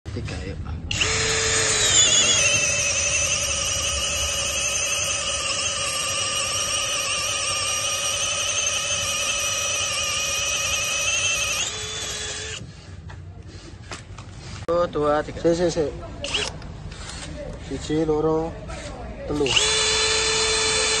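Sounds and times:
cordless drill motor whining: 0.9 - 12.7, 16.2 - 17.3, 19.3 - 21.0.

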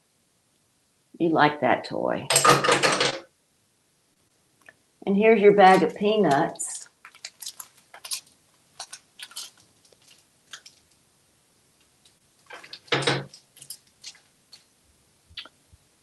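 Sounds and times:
bag crinkling and rustling: 6.8 - 11.0, 12.0 - 14.7.

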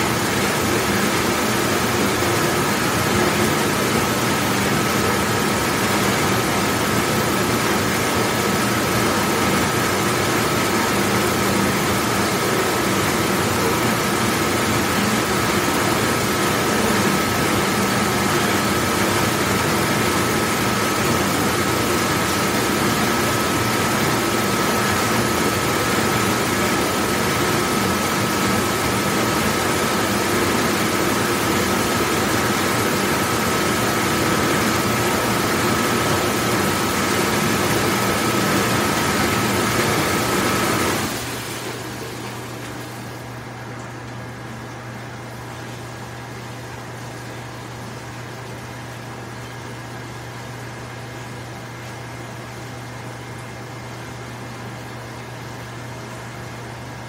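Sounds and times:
dishwashing machine running: 0.0 - 57.0.

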